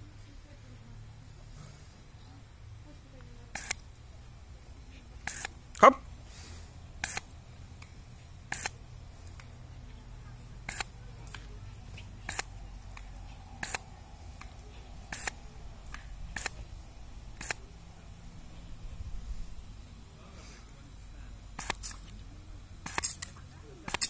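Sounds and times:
hose nozzle squirting water: 0:03.5 - 0:03.8, 0:05.3 - 0:05.6, 0:07.0 - 0:07.3, 0:08.5 - 0:09.4, 0:10.6 - 0:11.4, 0:12.2 - 0:16.6, 0:17.4 - 0:17.6, 0:21.6 - 0:22.1, 0:22.8 - 0:23.3.

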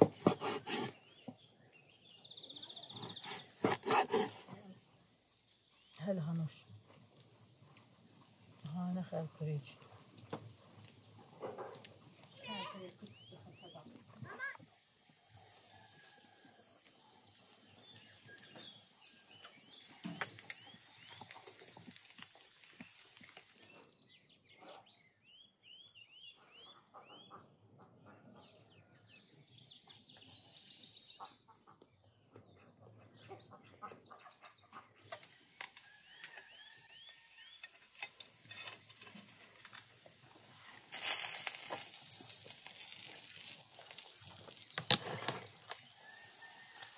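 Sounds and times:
small birds chirping: 0:00.0 - 0:46.9
rustling noise: 0:37.6 - 0:46.9.

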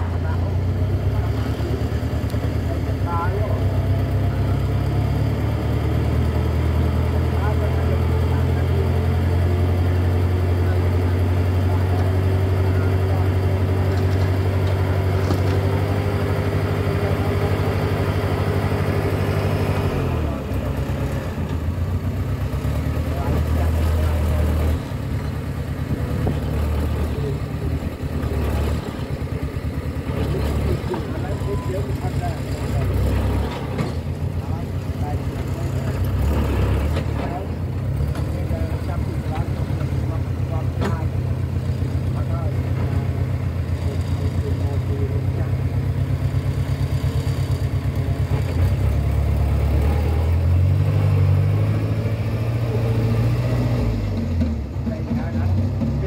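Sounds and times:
truck engine chugging: 0:00.0 - 0:56.0.

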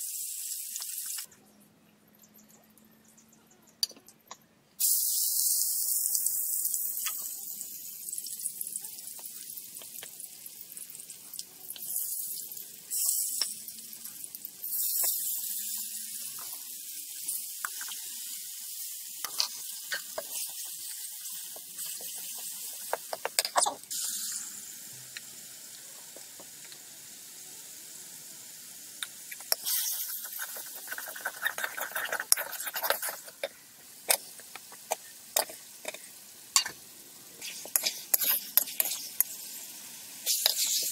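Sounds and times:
onions sizzling in hot oil: 0:00.0 - 0:01.3, 0:04.8 - 0:40.9
water hissing in hot pan: 0:00.0 - 0:01.3, 0:04.8 - 0:40.9
metal spatula scraping pan: 0:37.4 - 0:39.3.

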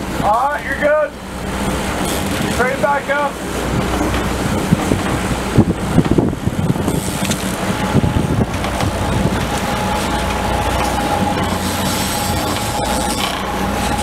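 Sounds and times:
boat engines running: 0:00.0 - 0:14.0
water rushing: 0:00.0 - 0:14.0
wind: 0:00.0 - 0:14.0
thin steady whine: 0:05.4 - 0:14.0.

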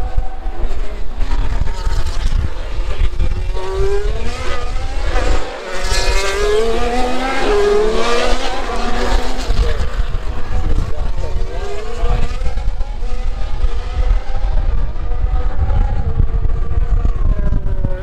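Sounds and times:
racing cars passing at high revs: 0:00.0 - 0:18.0.

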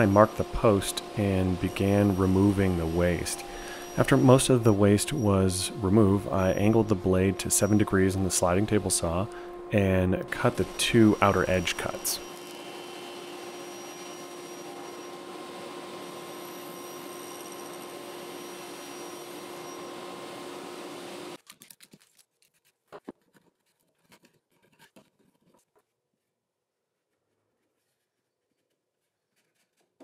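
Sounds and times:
table saw running: 0:00.0 - 0:21.4.

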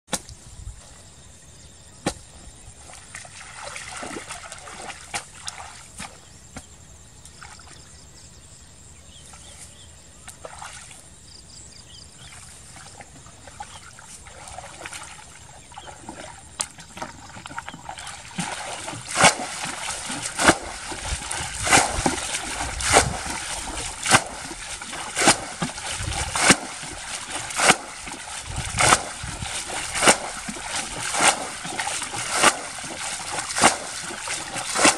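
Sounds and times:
water sloshing in a ditch: 0:00.1 - 0:08.2, 0:09.1 - 0:34.9
thrown water splashing: 0:02.9 - 0:06.1, 0:14.3 - 0:34.9.

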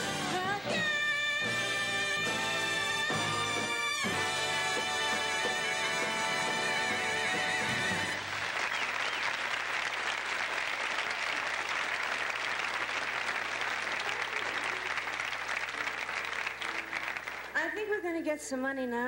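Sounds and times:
audience applauding: 0:03.6 - 0:17.7.

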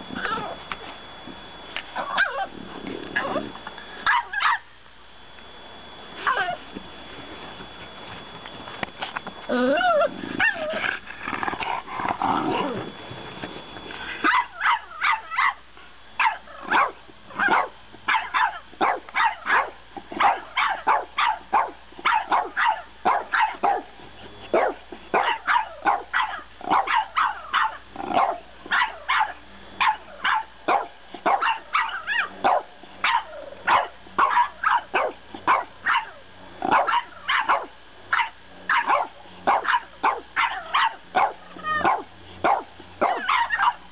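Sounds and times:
dog grumbling: 0:02.1 - 0:03.6, 0:09.5 - 0:12.9
puppy barking sharply: 0:14.2 - 0:15.6, 0:16.2 - 0:23.8, 0:24.6 - 0:43.8.

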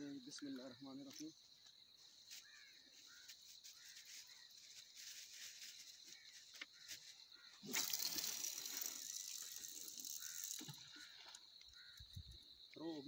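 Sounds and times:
insect chirps: 0:00.0 - 0:13.0
high-pitched insect drone: 0:07.0 - 0:12.6.

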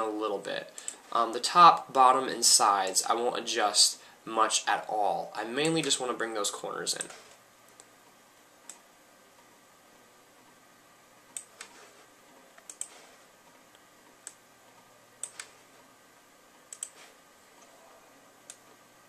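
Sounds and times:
faint room hiss: 0:00.0 - 0:19.0
computer mouse clicks: 0:11.3 - 0:11.8, 0:12.6 - 0:13.1, 0:15.2 - 0:15.6, 0:16.7 - 0:17.7.

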